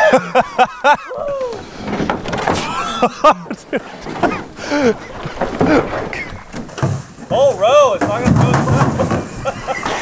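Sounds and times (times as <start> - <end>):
young men yelling and whooping: 1.0 - 1.6.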